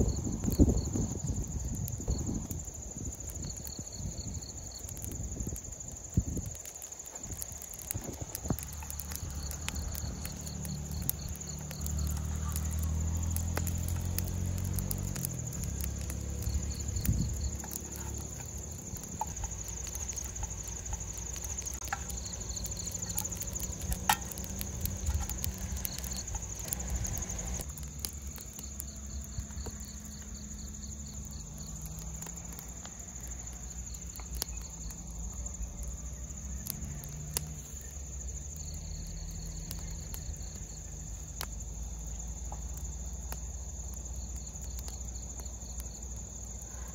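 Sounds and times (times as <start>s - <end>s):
crickets chirping: 0.0s - 46.9s
low rumble: 7.9s - 33.1s.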